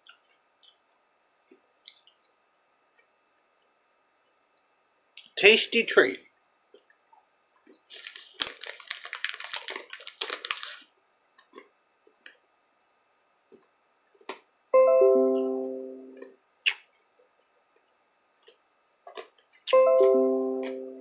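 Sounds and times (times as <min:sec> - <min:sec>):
plastic bag crinkling: 0:07.8 - 0:10.9
plucked string chord: 0:14.8 - 0:16.3, 0:19.7 - 0:21.0.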